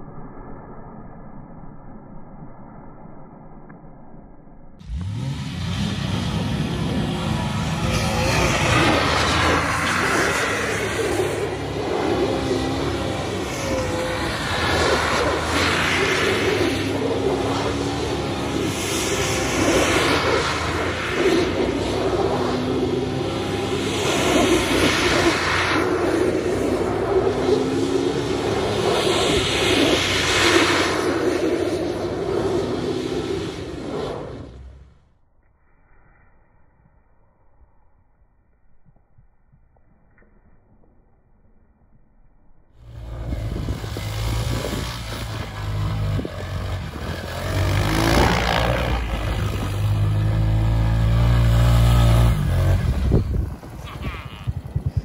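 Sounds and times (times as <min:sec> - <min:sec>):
rush of noise: 0:00.0 - 0:38.2, 0:42.8 - 0:55.0
car engine running hard: 0:04.8 - 0:34.8, 0:42.8 - 0:54.8
wheels throwing up snow spray: 0:42.9 - 0:54.9.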